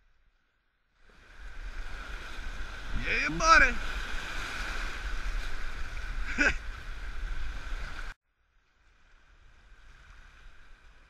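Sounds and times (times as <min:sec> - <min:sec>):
whitewater rushing and splashing: 0:01.1 - 0:08.2.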